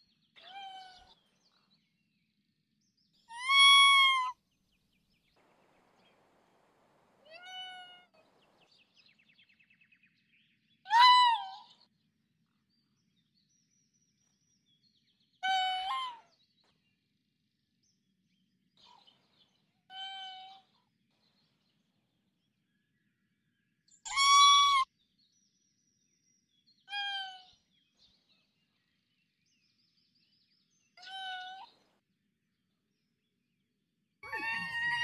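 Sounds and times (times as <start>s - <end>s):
raccoon dog high-pitched calls: 3.3s - 4.4s, 10.9s - 11.8s, 15.4s - 16.3s, 24.1s - 24.9s, 26.9s - 27.5s, 31.0s - 31.7s, 34.2s - 35.0s.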